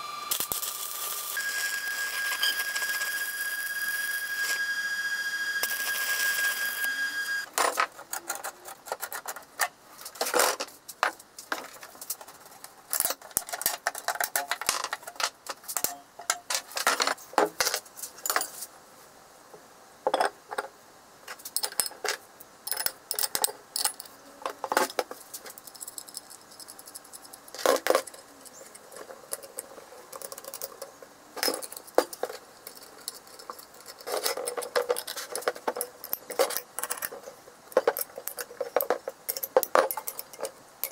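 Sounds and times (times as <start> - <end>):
welding arc crackling: 0.0 - 7.5
spanner on nuts: 25.5 - 40.9
steel parts clinking on workbench: 25.6 - 40.9.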